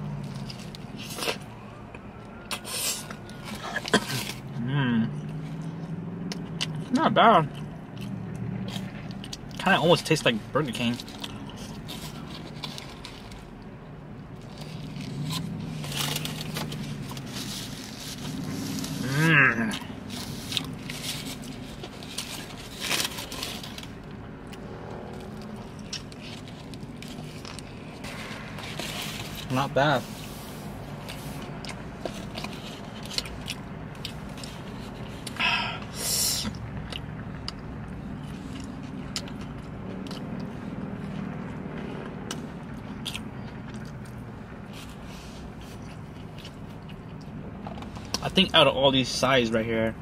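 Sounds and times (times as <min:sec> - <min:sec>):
person chewing and biting: 0:00.0 - 0:04.5, 0:05.2 - 0:09.7, 0:10.7 - 0:13.7, 0:14.3 - 0:29.5, 0:30.9 - 0:48.2
low steady hum: 0:00.0 - 0:50.0
rustles: 0:14.4 - 0:35.3
foil wrapper crinkling: 0:19.9 - 0:24.1.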